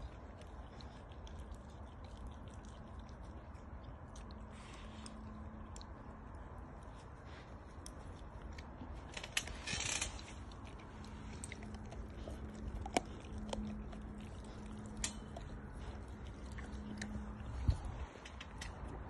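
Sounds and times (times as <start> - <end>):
dog chewing raw chicken: 0.0 - 18.0
low steady hum: 0.0 - 19.0
rustling: 6.8 - 19.0.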